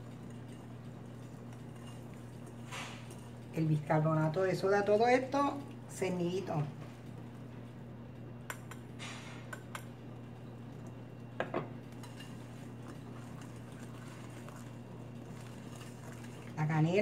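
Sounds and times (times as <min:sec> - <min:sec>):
utensil stirring batter in glass bowl: 0:00.0 - 0:03.6, 0:11.9 - 0:17.0
low steady hum: 0:00.0 - 0:17.0
utensil clinking against bowl: 0:11.4 - 0:14.7.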